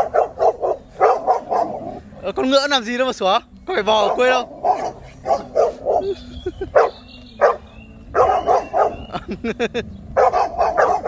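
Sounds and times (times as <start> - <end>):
dogs barking: 0.0 - 2.4, 3.9 - 9.3, 10.1 - 11.0.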